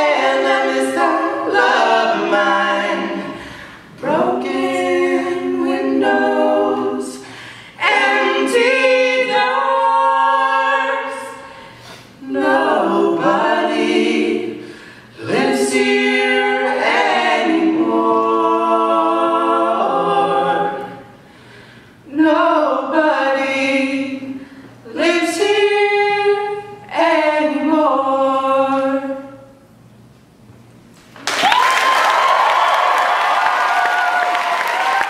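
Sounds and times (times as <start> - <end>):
people singing a cappella harmony: 0.0 - 29.7
applause: 31.1 - 35.0.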